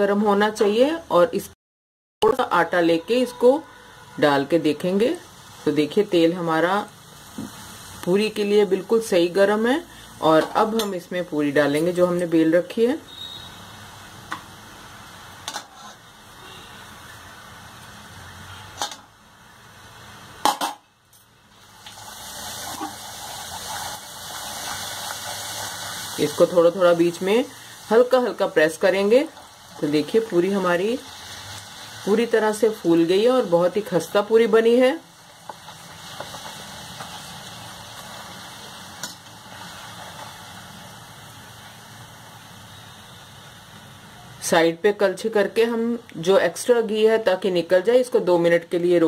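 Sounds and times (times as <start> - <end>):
dough frying in hot oil: 21.3 - 47.8.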